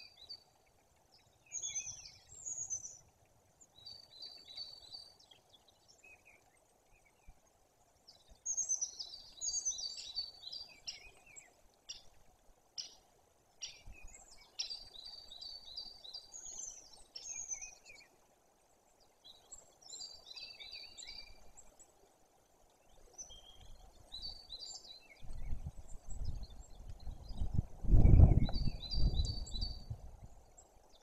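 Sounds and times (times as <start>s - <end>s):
songbirds chirping: 0.0s - 31.0s
low gusty rumble: 25.3s - 30.4s.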